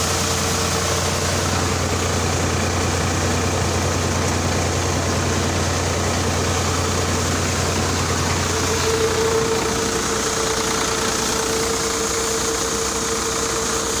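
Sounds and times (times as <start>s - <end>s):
diesel tractor engine running: 0.0s - 14.0s
mid-pitched hum: 0.0s - 14.0s.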